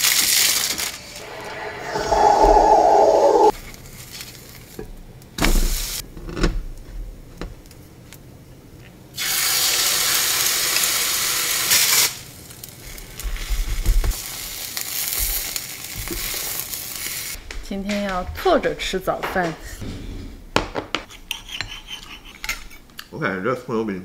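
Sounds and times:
batter sizzling in hot oil: 9.2s - 17.4s.

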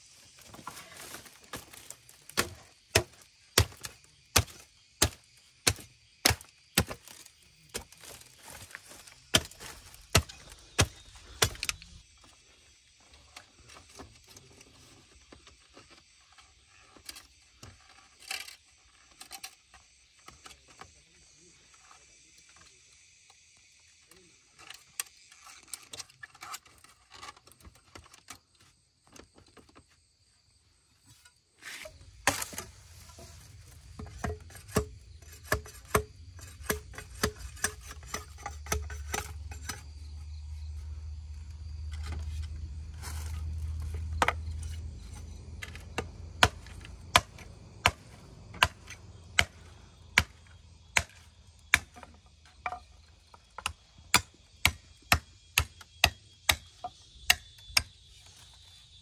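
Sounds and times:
insects buzzing: 0.0s - 59.0s
hand tool striking wood: 0.5s - 12.0s, 31.6s - 40.0s, 43.1s - 52.9s, 53.6s - 58.0s.

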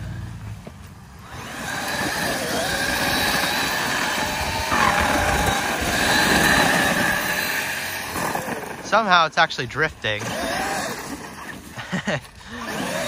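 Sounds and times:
electric motor whining: 1.2s - 9.0s, 9.9s - 11.8s, 12.4s - 13.0s.

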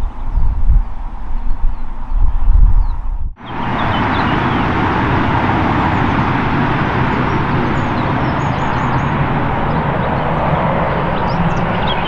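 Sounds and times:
bird chirps: 1.4s - 4.6s, 7.8s - 12.0s
jet engine roar: 3.4s - 12.0s.

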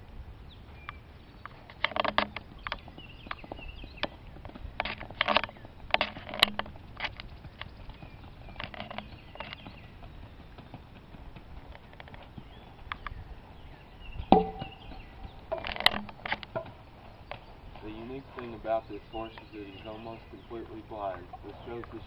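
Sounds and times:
horse hooves knocking on wood: 1.7s - 13.1s, 14.2s - 22.0s
loud ringing knock: 14.3s - 15.1s.

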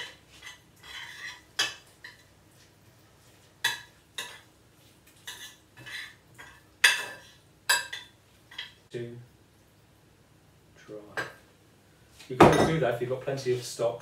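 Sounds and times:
spoon scraping ceramic dish: 0.0s - 2.2s.

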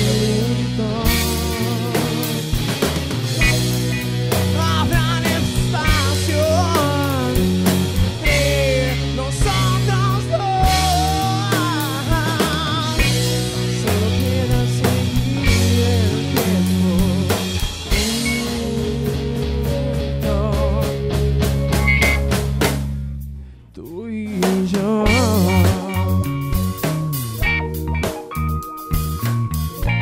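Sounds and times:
man singing: 0.0s - 2.8s, 3.9s - 22.2s, 23.7s - 27.2s
rock band playing: 0.0s - 23.6s, 24.3s - 30.0s.

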